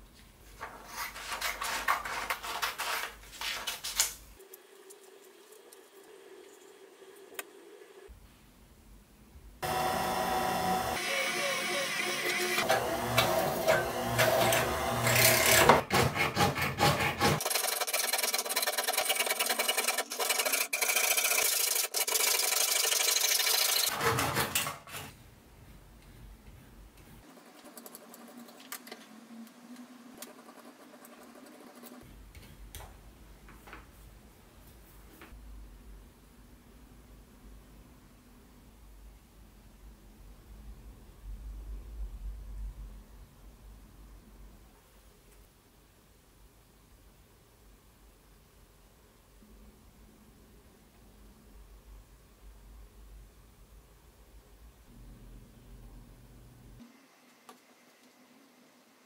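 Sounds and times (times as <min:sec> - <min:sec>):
drill press boring metal: 0:09.6 - 0:15.8.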